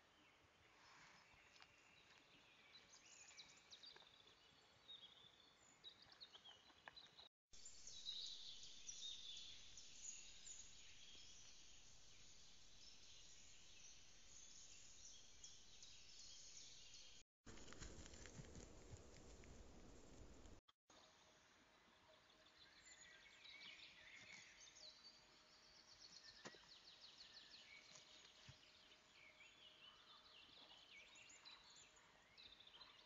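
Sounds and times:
birds chirping and singing: 6.2 - 17.2.

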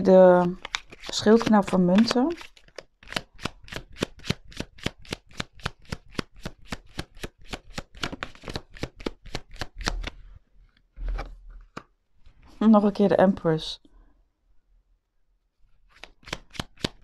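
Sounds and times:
cards being shuffled: 0.3 - 10.2, 11.0 - 12.5, 15.8 - 17.0.

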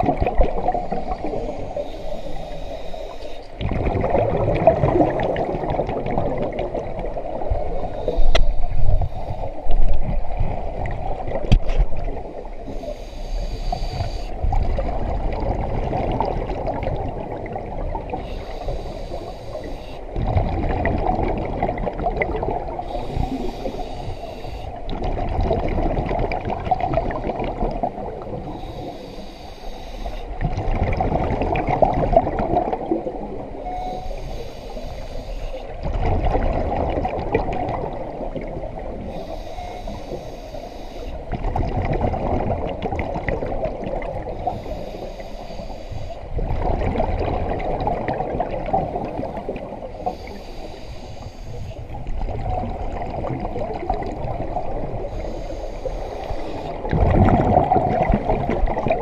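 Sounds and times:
exhaust bubbles rumbling: 0.0 - 1.4, 3.6 - 7.8, 20.1 - 23.3, 24.8 - 28.5, 30.4 - 33.5, 35.8 - 39.0, 41.3 - 44.4, 56.8 - 59.0
regulator in-breath hiss: 0.9 - 3.5, 7.8 - 9.7, 12.6 - 14.4, 18.2 - 20.1, 22.8 - 24.8, 28.5 - 30.3, 33.7 - 35.8, 39.0 - 41.2, 44.4 - 46.3, 50.0 - 52.0, 55.0 - 56.8.

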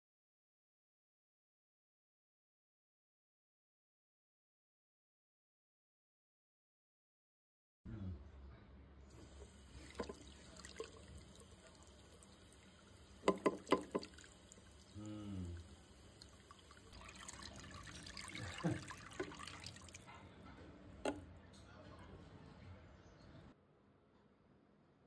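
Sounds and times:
water pouring and dripping: 9.1 - 20.3.

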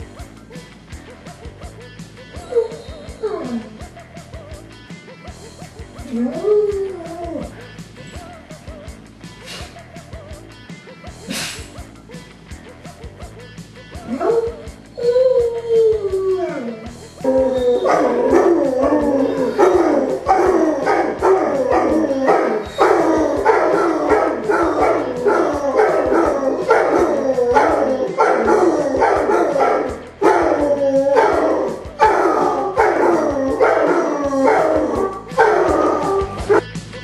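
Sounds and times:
dogs howling and baying: 2.3 - 3.9, 6.0 - 8.3, 14.0 - 36.6.

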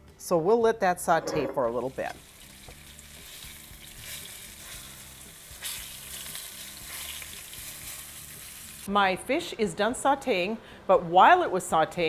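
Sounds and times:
fish sizzling in oil: 1.9 - 8.9.

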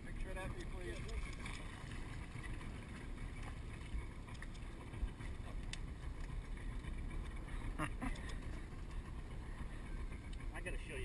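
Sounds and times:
faint clicks: 2.3 - 4.8, 5.4 - 7.4, 8.0 - 9.0.

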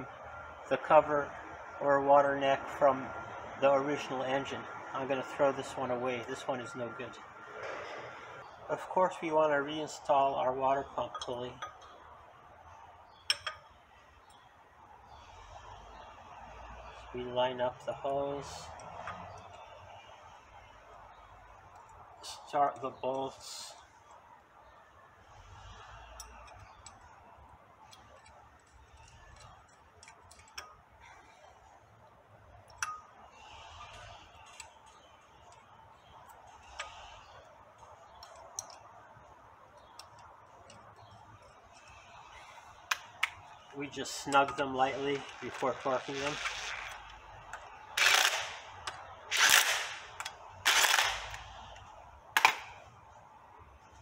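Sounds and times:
light metallic clicks of bolts: 11.0 - 12.1, 13.2 - 14.5, 25.6 - 27.2, 27.8 - 31.6, 32.6 - 46.4, 47.0 - 49.1.

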